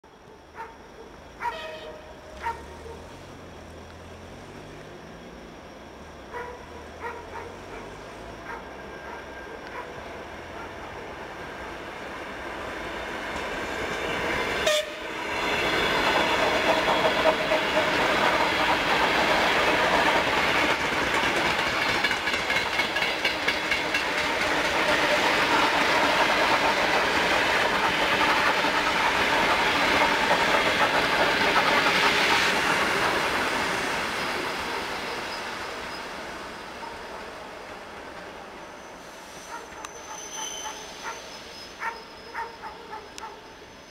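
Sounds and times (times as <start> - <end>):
train wheels clattering over rail joints: 15.2 - 34.8.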